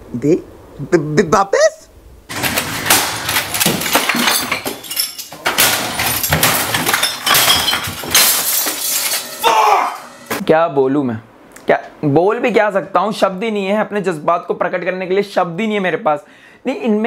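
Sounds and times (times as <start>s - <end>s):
glass breaking and clinking: 2.3s - 10.4s
household objects smashing: 2.3s - 10.4s.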